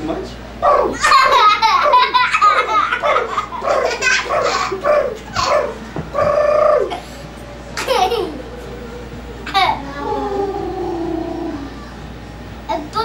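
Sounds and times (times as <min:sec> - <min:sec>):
girls laughing: 0:00.9 - 0:07.0, 0:07.8 - 0:08.6.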